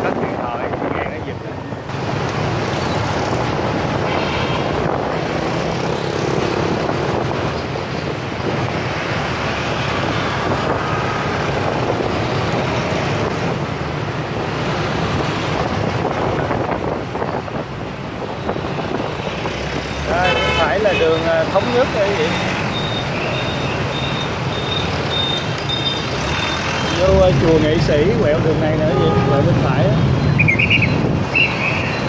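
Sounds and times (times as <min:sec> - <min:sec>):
wind on microphone: 0:00.0 - 0:20.2, 0:27.0 - 0:32.0
motorbike engines humming: 0:00.0 - 0:32.0
road traffic: 0:00.0 - 0:32.0.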